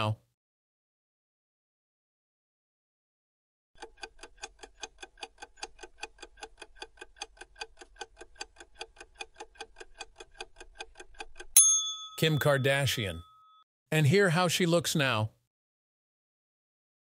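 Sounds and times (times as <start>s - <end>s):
clock ticking: 3.8s - 11.6s
loud bell-like ding: 11.6s - 13.6s.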